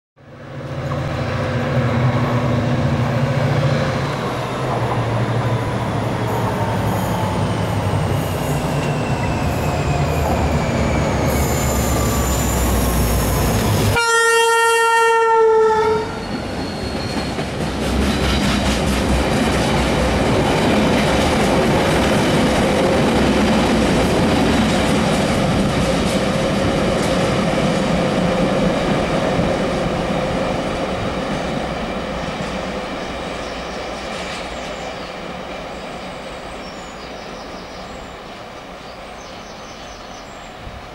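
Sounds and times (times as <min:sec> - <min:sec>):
diesel locomotive engine: 0:00.2 - 0:40.9
train horn: 0:13.8 - 0:16.4.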